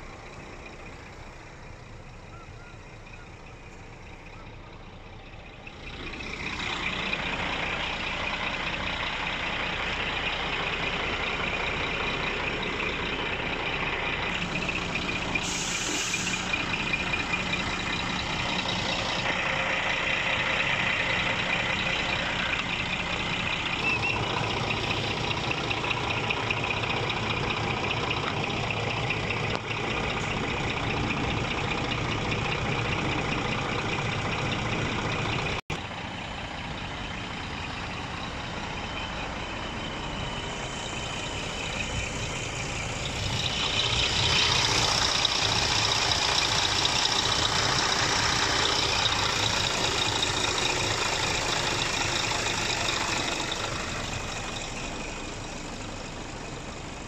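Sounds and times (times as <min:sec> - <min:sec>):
diesel engine idling: 0:00.0 - 0:57.0
air hiss: 0:15.2 - 0:16.7.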